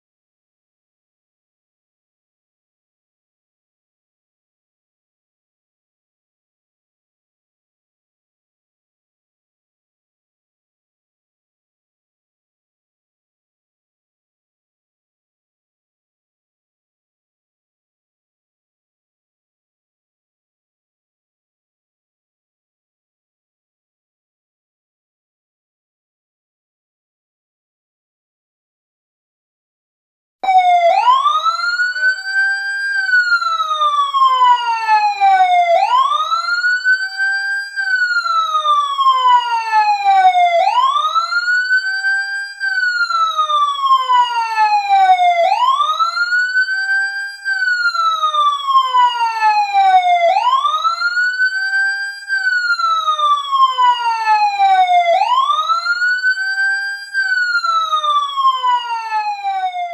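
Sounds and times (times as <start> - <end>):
fire truck siren wailing: 30.4 - 59.9.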